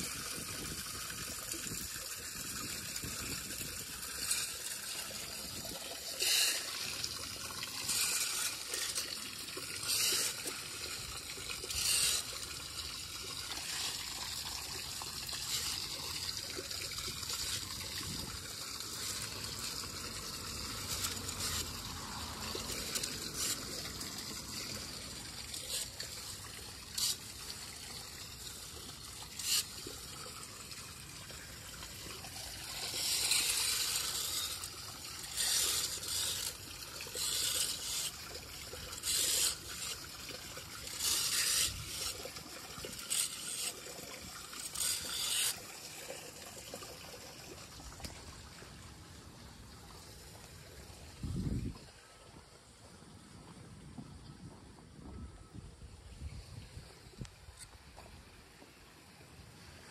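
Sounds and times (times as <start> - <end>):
water trickling into drain: 0.0 - 53.2
hand rake scraping: 2.4 - 46.4.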